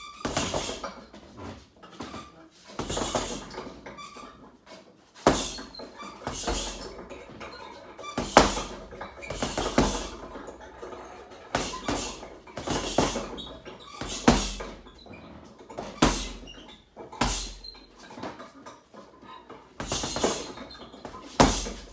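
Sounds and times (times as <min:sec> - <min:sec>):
punches thudding on heavy bag: 0:00.2 - 0:00.9, 0:02.8 - 0:03.6, 0:05.2 - 0:05.7, 0:06.3 - 0:07.0, 0:08.2 - 0:10.3, 0:11.6 - 0:14.8, 0:15.8 - 0:16.5, 0:17.2 - 0:17.6, 0:19.8 - 0:21.9.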